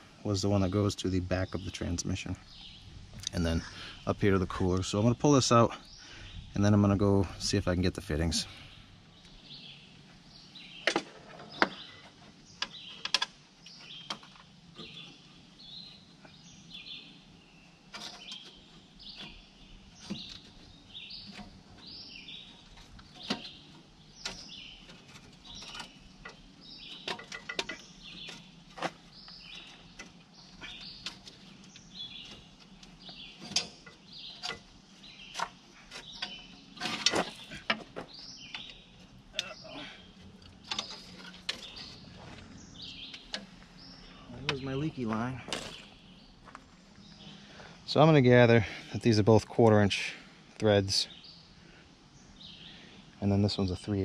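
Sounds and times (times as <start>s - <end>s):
birds chirping: 0.0s - 54.0s
metallic clicks and knocks: 30.8s - 34.7s
metal clatter: 35.3s - 38.1s.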